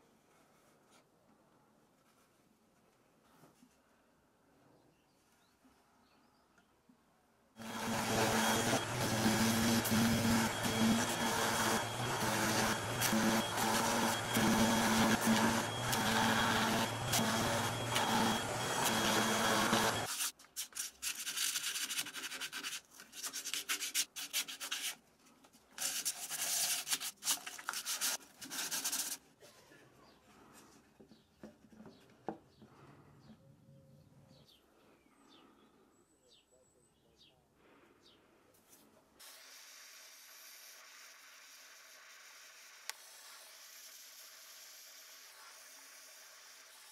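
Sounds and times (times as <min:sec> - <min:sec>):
faint handling sounds: 0:00.0 - 0:06.0
power sander on wood: 0:07.6 - 0:20.1
hand sanding wood: 0:07.6 - 0:25.0.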